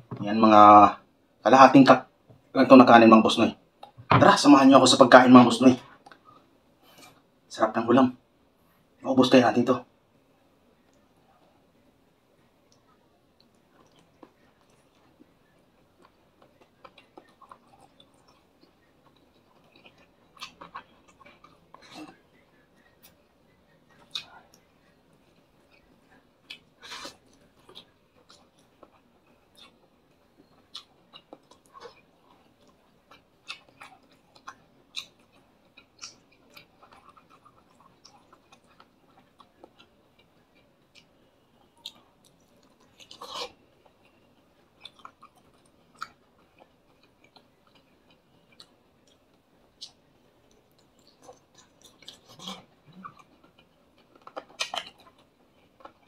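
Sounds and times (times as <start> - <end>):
person chewing with mouth smacks: 12.7 - 56.0.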